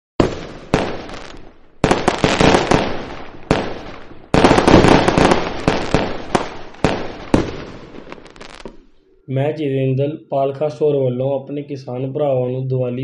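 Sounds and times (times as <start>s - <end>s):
firecrackers banging and crackling: 0.2s - 8.9s.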